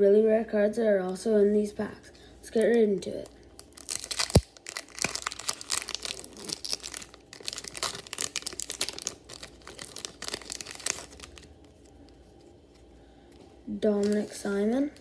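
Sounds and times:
foil wrapper crinkling and tearing: 0:03.5 - 0:12.1, 0:13.9 - 0:15.0.

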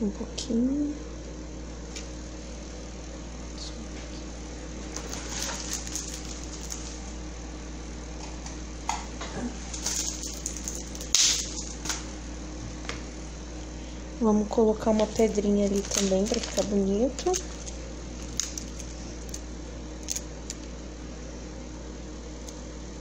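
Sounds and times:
low electrical hum: 0:00.0 - 0:23.0
craft materials rustling: 0:04.9 - 0:07.0, 0:09.8 - 0:11.8, 0:14.9 - 0:19.4, 0:20.0 - 0:20.6.

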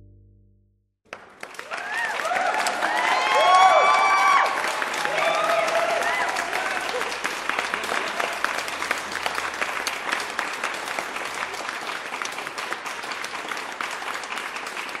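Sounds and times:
audience applauding: 0:01.1 - 0:15.0.

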